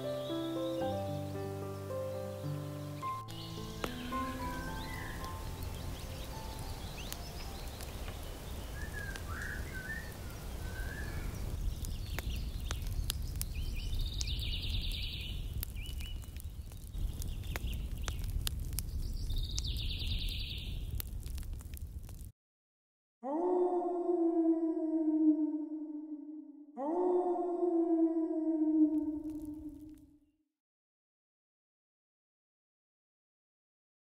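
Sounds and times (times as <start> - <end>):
birds singing: 0.0 - 18.3, 18.9 - 20.8.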